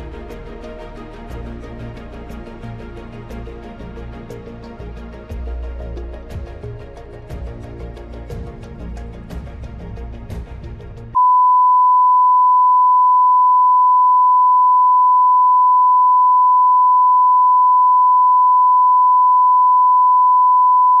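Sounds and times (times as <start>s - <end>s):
steady test tone beep: 11.2s - 21.0s.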